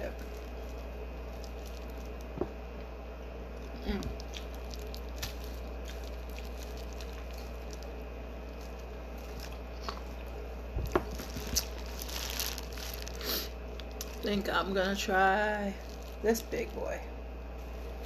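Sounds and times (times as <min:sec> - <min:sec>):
wet chewing sounds: 0:00.0 - 0:02.4, 0:03.5 - 0:10.4
plastic crinkling: 0:00.0 - 0:02.6, 0:03.5 - 0:17.0
steady low hum: 0:00.0 - 0:18.0.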